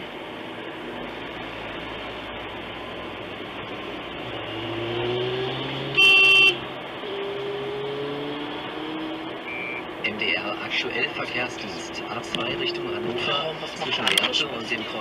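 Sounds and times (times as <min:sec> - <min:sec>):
car engine: 0:00.0 - 0:15.0
road noise: 0:00.0 - 0:15.0
car horn blast: 0:05.9 - 0:06.6.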